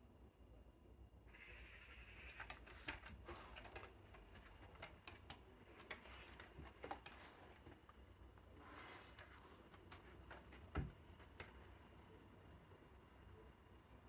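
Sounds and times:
quiet low hum: 0.0 - 14.0.

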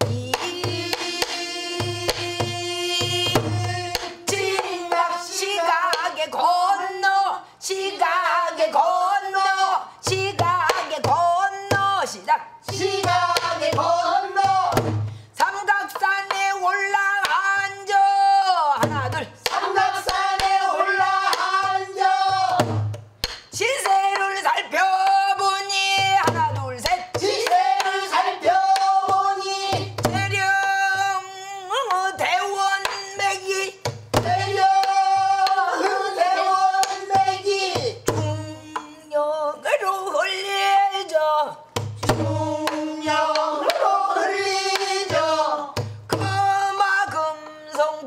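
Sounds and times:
barrel drum strikes and thumps: 21.6 - 23.2.

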